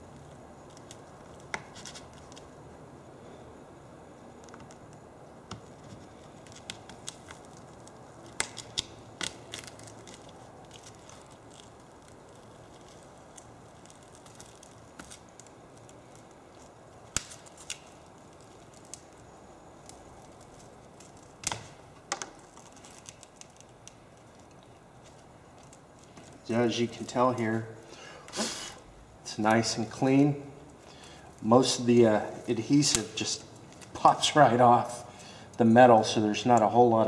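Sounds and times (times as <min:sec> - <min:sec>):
steady low hiss: 0:00.0 - 0:37.0
glass clicks and crackles being pried: 0:04.4 - 0:19.2
sharp snaps: 0:06.5 - 0:10.3.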